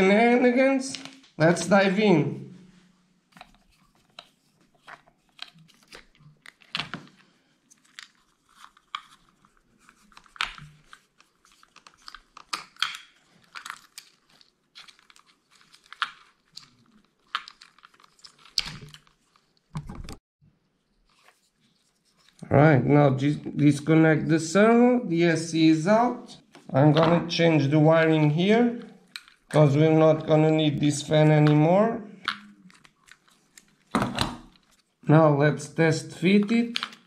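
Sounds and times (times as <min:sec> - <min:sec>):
small clicks and scrapes of handwork: 0:03.3 - 0:19.8, 0:21.0 - 0:22.4, 0:32.2 - 0:33.9.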